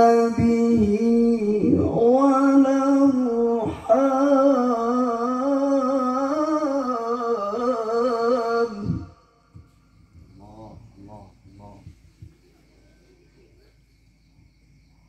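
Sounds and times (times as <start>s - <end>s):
man chanting through loudspeakers: 0.0s - 12.0s.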